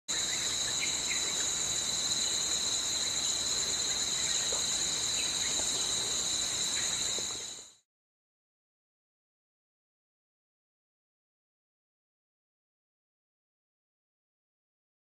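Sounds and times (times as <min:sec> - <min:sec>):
insects buzzing: 0:00.1 - 0:07.8
faint insect chirps: 0:00.1 - 0:07.9.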